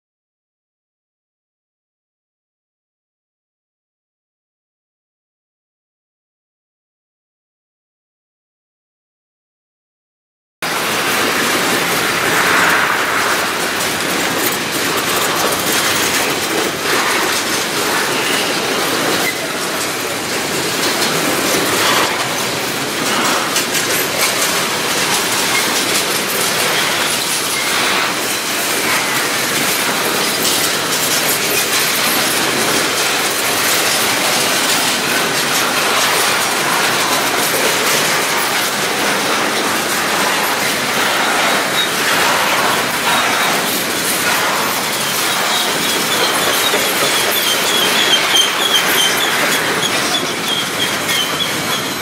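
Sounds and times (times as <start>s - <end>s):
steel wheels rushing on rail: 10.6s - 52.0s
train cars clicking and clanking: 10.6s - 52.0s.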